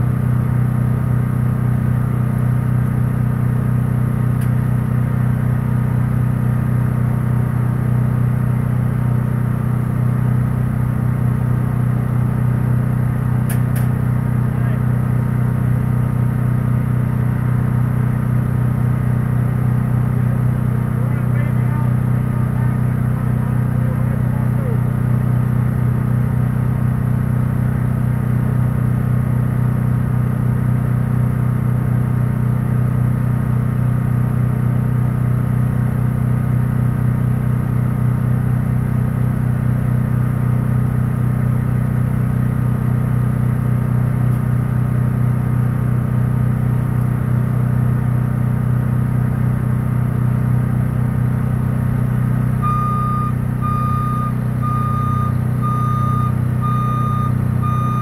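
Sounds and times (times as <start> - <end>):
heavy vehicle engine running: 0.0 - 58.0
reversing alarm beeping: 52.6 - 58.0.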